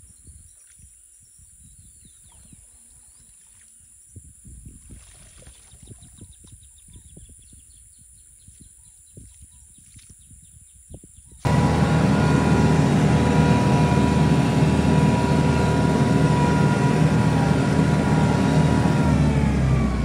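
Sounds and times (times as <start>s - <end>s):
water splashing and dripping: 4.7s - 6.6s
low uneven rumble: 11.5s - 20.0s.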